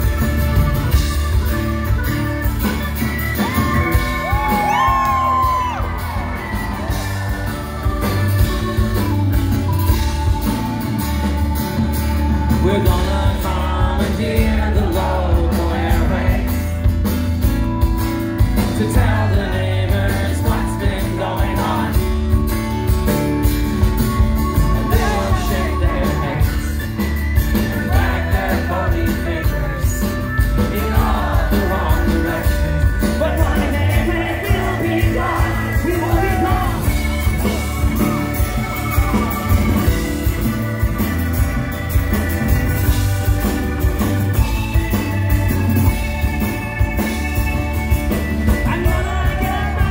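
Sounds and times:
acoustic guitar: 0.0 - 49.9
bass guitar: 0.0 - 49.9
drums: 0.0 - 49.9
keyboard: 0.0 - 49.9
man singing: 12.4 - 16.9, 18.6 - 22.4, 24.6 - 37.6, 48.5 - 49.9.

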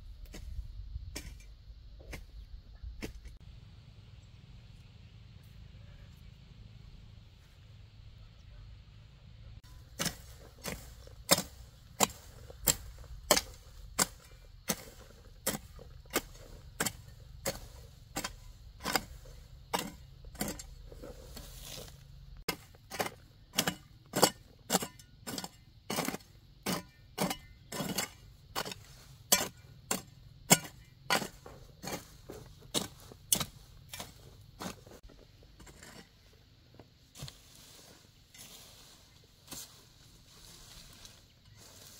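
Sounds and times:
hoe chopping into soil: 9.6 - 36.4.

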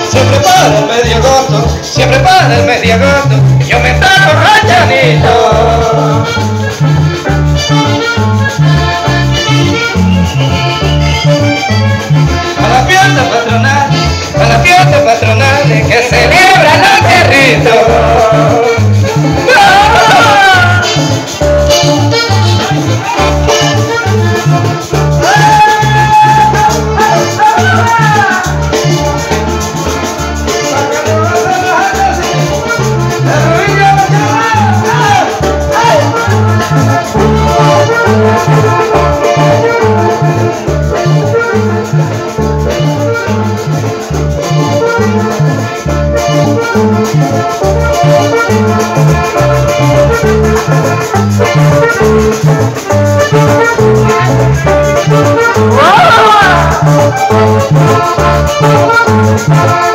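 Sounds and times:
latin dance music: 0.0 - 59.9.

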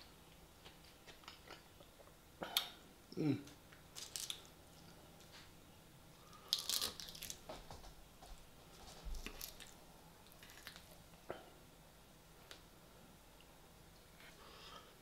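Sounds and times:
salad crunching: 9.1 - 10.9.

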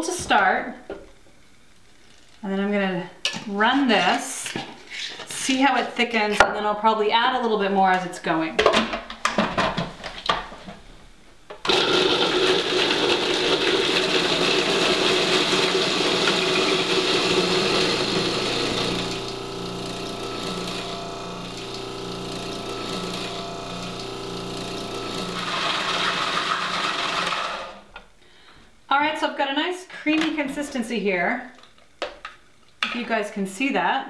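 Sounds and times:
food processor motor running: 11.7 - 27.8.

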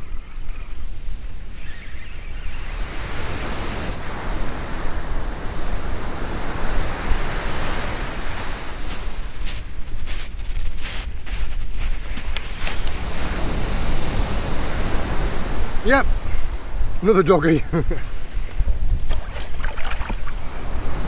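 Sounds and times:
surf washing on shingle: 2.7 - 21.0
footsteps crunching on shingle: 8.8 - 13.0.

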